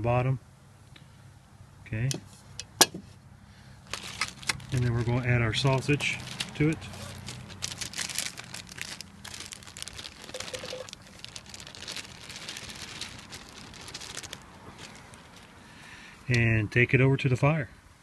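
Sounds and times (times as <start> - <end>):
plastic bag crinkling: 3.8 - 15.7.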